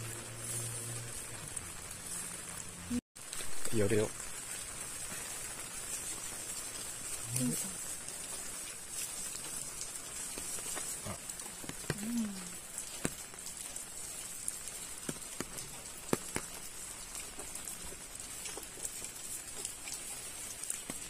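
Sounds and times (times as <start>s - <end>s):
low hum of a voice: 11.9s - 12.6s.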